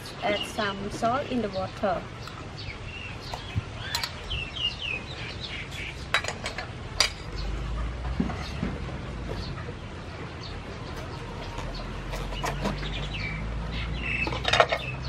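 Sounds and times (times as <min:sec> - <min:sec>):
birds chirping: 0:00.0 - 0:15.0
cleaver on wooden board: 0:11.0 - 0:13.1.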